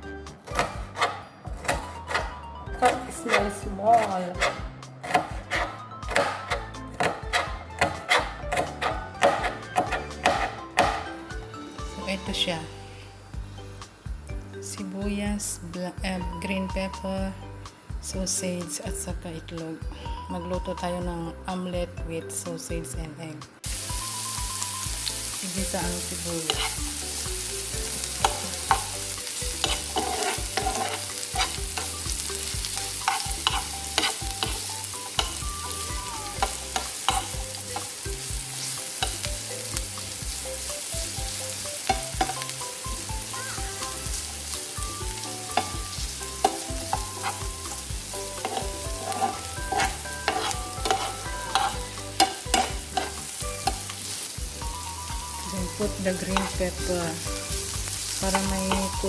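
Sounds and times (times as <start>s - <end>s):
onion sizzling in pan: 0.0s - 14.5s, 23.6s - 59.0s
metal spoon scraping pan: 2.8s - 11.0s, 26.4s - 26.9s, 29.6s - 32.0s, 32.8s - 35.4s, 36.4s - 37.9s, 46.4s - 47.6s, 48.2s - 54.0s, 56.2s - 56.6s.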